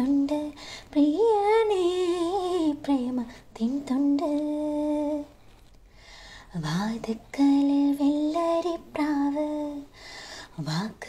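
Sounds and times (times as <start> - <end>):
woman singing unaccompanied: 0.0 - 5.4, 6.5 - 9.9, 10.5 - 11.0.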